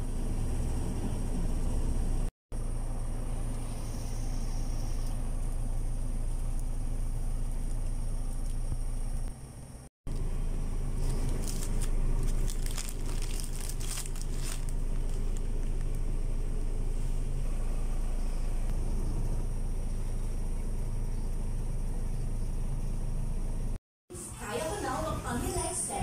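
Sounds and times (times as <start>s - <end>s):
steady low rumble: 0.0s - 23.8s
bags crinkling and rustling: 11.0s - 16.0s.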